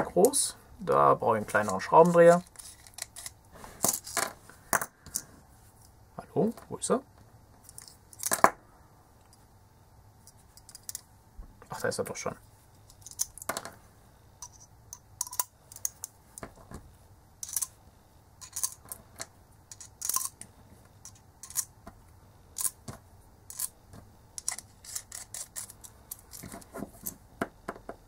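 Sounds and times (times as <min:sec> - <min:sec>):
screwdriver bits clicking: 0:24.4 - 0:27.2.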